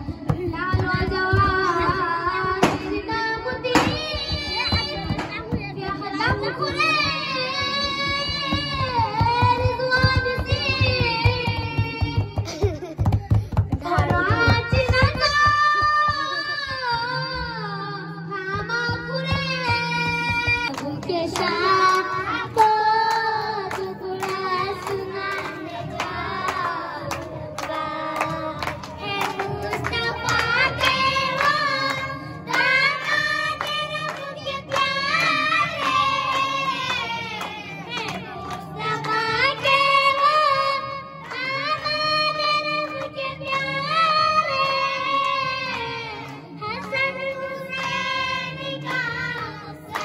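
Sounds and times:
hands clapping: 4.6 - 5.6, 19.4 - 40.3, 41.2 - 42.0, 42.8 - 43.7, 44.5 - 50.0.

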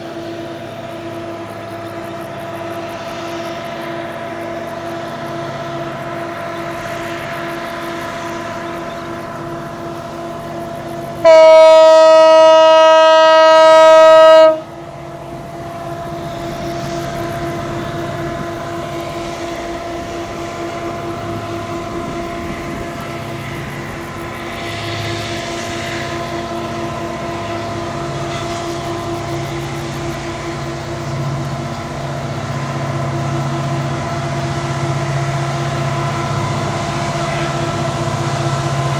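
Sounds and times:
locomotive engine running: 0.0 - 38.9
train horn blast: 11.1 - 15.9, 25.0 - 38.9.

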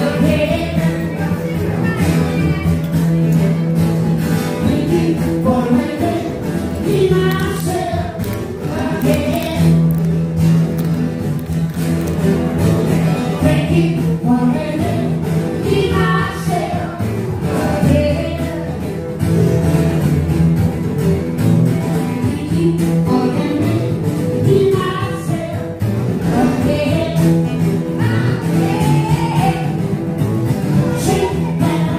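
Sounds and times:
person singing: 0.0 - 2.7, 4.4 - 10.0, 13.0 - 19.1, 22.0 - 29.9, 30.7 - 31.9
acoustic guitar: 0.0 - 31.9.

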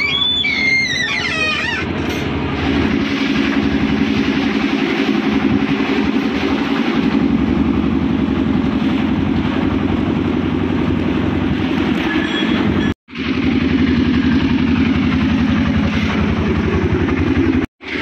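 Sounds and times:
diesel bus engine idling: 13.2 - 18.0.

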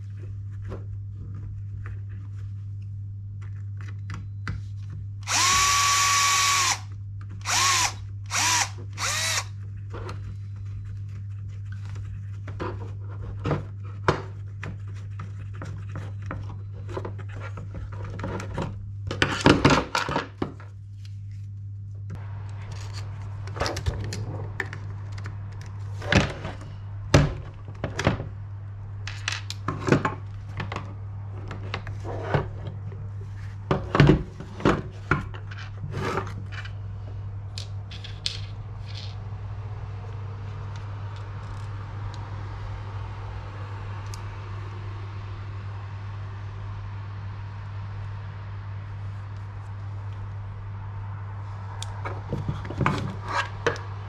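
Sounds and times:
electric screwdriver running: 5.2 - 9.6.

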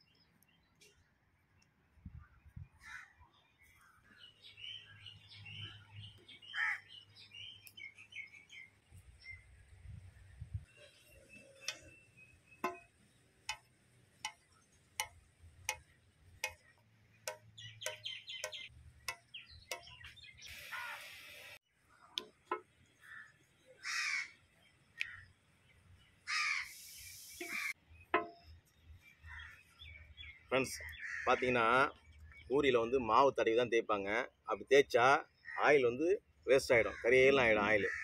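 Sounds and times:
harsh bird calls: 2.2 - 9.5, 10.7 - 22.1, 22.8 - 32.6, 36.8 - 38.0
birds calling: 2.2 - 9.7, 10.5 - 33.0, 36.6 - 38.0.

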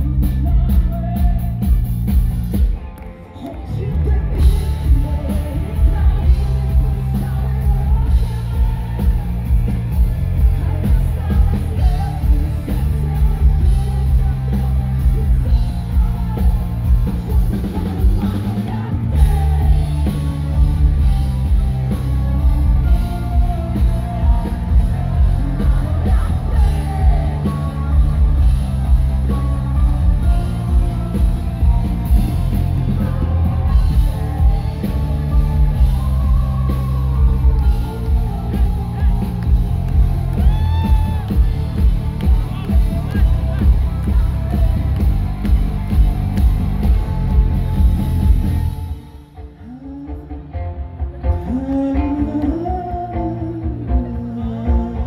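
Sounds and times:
woman singing: 0.0 - 1.8, 3.4 - 45.6, 51.4 - 55.0
drum kit: 0.0 - 3.0, 3.8 - 49.2
bass guitar: 0.0 - 55.0
electric guitar: 0.0 - 55.0.

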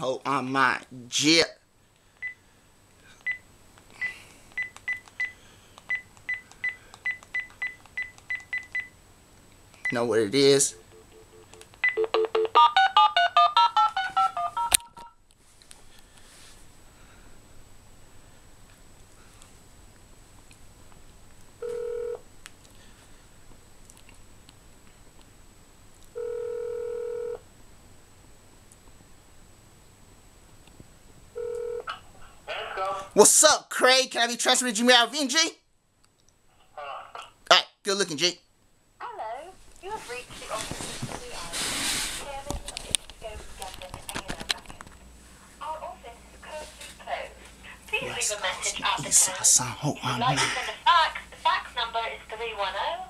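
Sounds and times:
telephone ringback tone: 10.8 - 15.1, 21.6 - 22.2, 26.2 - 27.4, 31.4 - 31.9
telephone keypad beeps: 10.9 - 12.6.

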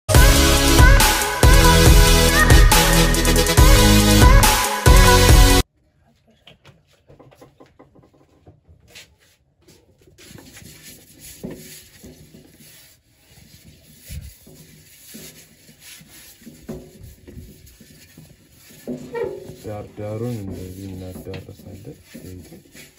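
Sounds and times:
hand rubbing inside a pot: 8.0 - 22.9.

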